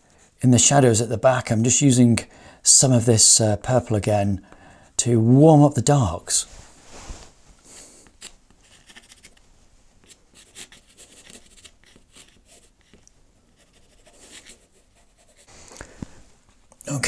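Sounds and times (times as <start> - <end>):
pastel stick scratching: 8.0 - 9.4, 10.0 - 15.5.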